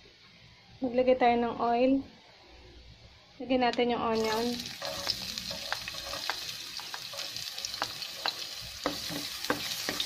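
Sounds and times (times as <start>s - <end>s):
onion sizzling in hot oil: 4.1s - 10.0s
spatula stirring in wok: 4.2s - 10.0s.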